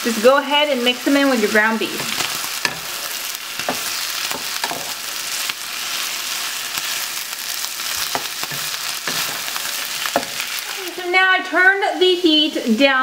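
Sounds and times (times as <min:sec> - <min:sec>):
meat and mushrooms sizzling in pan: 0:00.0 - 0:13.0
wooden spoon scraping pan: 0:07.8 - 0:10.8.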